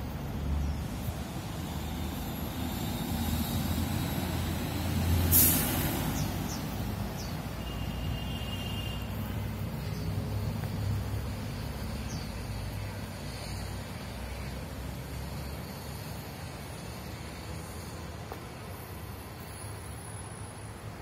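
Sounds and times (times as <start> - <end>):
bus passing: 0.0 - 21.0
city street traffic rumble: 0.0 - 21.0
air brakes hissing: 0.9 - 9.4.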